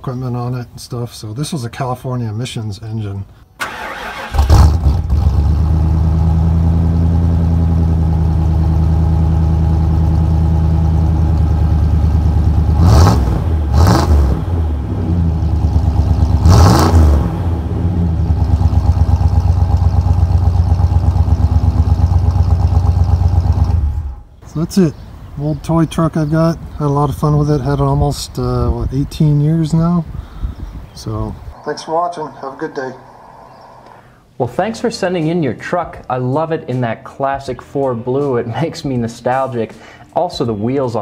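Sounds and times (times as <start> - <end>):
car engine idling and revving: 4.4 - 24.3.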